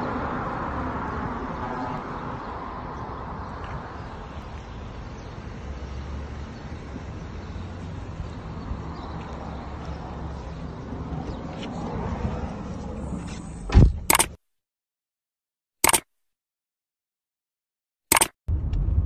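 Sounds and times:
car engine hum: 0:00.0 - 0:13.7, 0:18.5 - 0:19.0
road noise rushing: 0:00.0 - 0:14.3.

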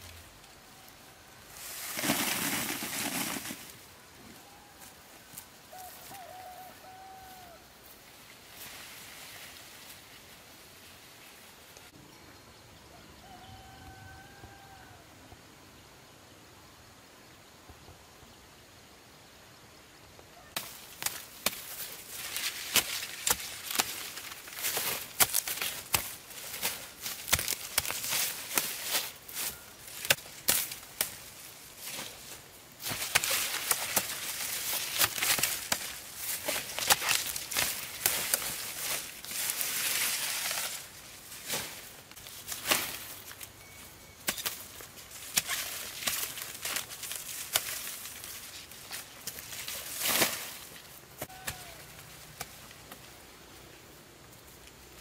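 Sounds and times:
dry corn stalks crackling: 0:00.0 - 0:11.9, 0:20.4 - 0:55.0
leaves rustling: 0:00.0 - 0:12.0, 0:20.4 - 0:55.0
stalks snapping: 0:20.6 - 0:29.0, 0:29.9 - 0:31.2, 0:32.8 - 0:39.0, 0:45.2 - 0:50.5.

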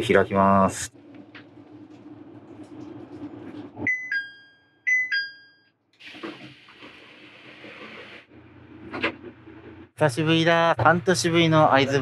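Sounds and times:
train door opening with air hiss: 0:06.0 - 0:08.3.

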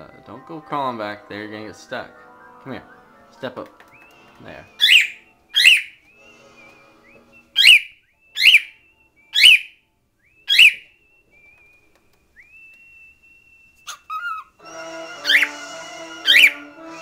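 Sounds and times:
cockatiel warbling whistles: 0:04.7 - 0:11.8, 0:12.4 - 0:14.6, 0:15.2 - 0:15.6, 0:16.2 - 0:17.0
cockatiel sharp calls: 0:04.8 - 0:06.0, 0:07.6 - 0:08.8, 0:09.4 - 0:09.8, 0:10.5 - 0:10.9, 0:13.8 - 0:14.6, 0:15.2 - 0:17.0.

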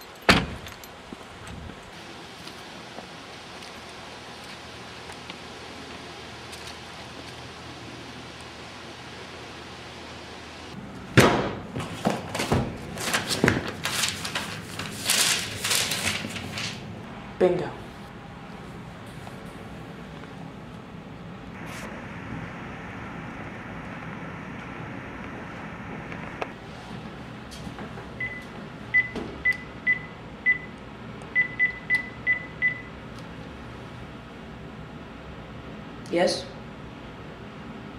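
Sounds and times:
loud thump: 0:11.2 - 0:11.6
phone book pages flipping: 0:11.8 - 0:16.8
phone keypad beeps: 0:29.0 - 0:30.7, 0:31.4 - 0:32.9.

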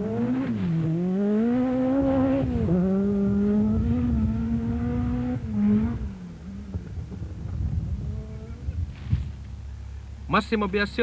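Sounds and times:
rally car engine at high revs: 0:00.0 - 0:08.7.

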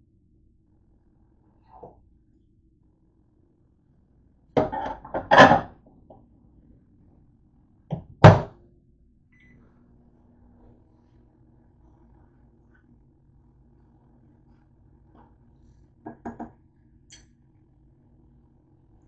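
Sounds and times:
microwave beep: 0:09.3 - 0:09.6.

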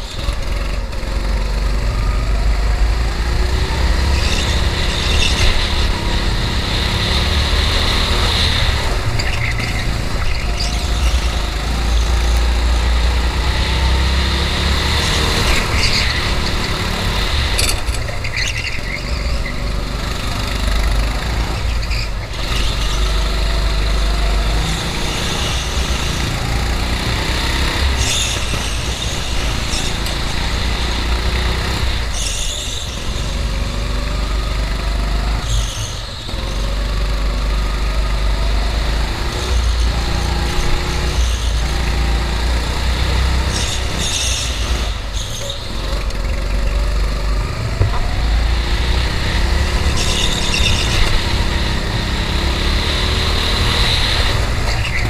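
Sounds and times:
go-kart engine revving: 0:00.0 - 0:55.0
tyre squeals: 0:03.9 - 0:05.9, 0:09.0 - 0:12.4, 0:15.1 - 0:19.8, 0:27.2 - 0:33.5, 0:35.3 - 0:36.8, 0:43.0 - 0:52.0, 0:53.3 - 0:55.0.

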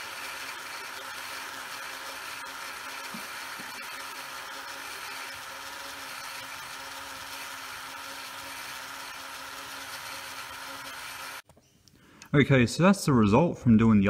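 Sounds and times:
small electric motor whirring: 0:00.0 - 0:11.4.

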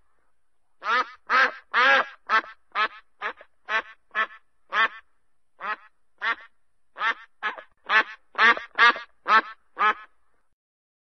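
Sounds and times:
duck quacking: 0:00.8 - 0:05.0, 0:05.6 - 0:10.1.

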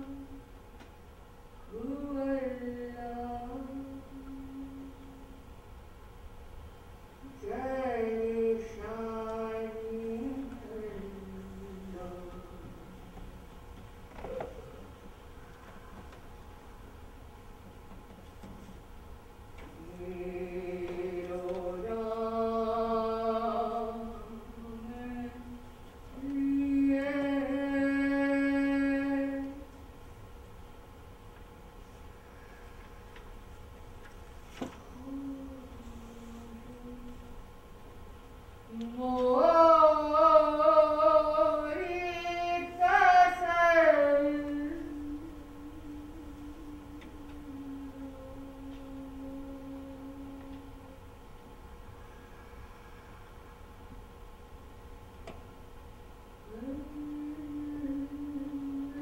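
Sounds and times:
woman singing unaccompanied: 0:00.0 - 0:00.4, 0:01.7 - 0:05.4, 0:07.2 - 0:13.2, 0:19.6 - 0:29.8, 0:34.9 - 0:37.5, 0:38.7 - 0:51.0, 0:56.4 - 0:59.0.

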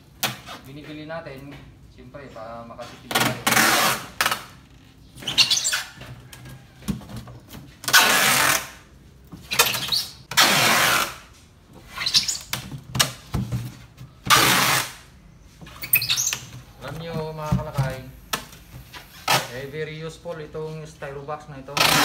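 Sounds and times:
packing tape ripping off roll: 0:07.9 - 0:08.8, 0:09.6 - 0:11.2, 0:14.3 - 0:15.0.

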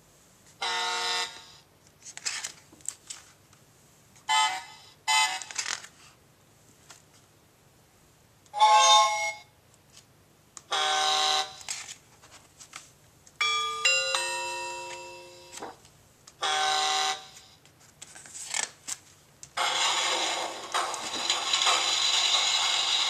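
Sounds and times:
electronic toy train horn honk: 0:00.6 - 0:01.5, 0:04.3 - 0:05.5, 0:10.7 - 0:11.6, 0:16.4 - 0:17.4
ding-dong chime: 0:13.4 - 0:15.6.

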